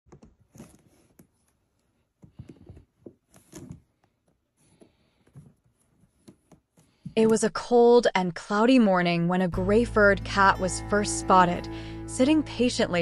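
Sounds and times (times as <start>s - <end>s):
kittens scratching in rope basket: 0.2s - 7.0s.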